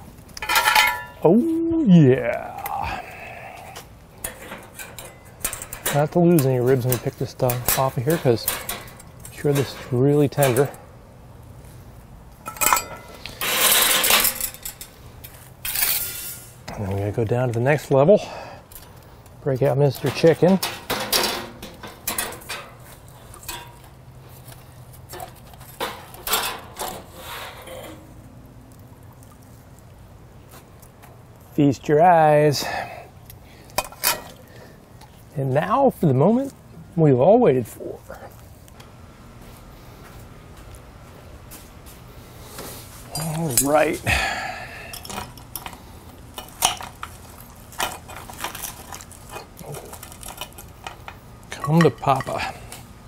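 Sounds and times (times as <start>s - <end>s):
metal utensils scraping grill grate: 0.4s - 1.2s, 4.2s - 10.9s, 12.4s - 16.7s, 17.6s - 28.2s, 33.8s - 34.7s, 42.5s - 44.0s, 44.8s - 52.8s.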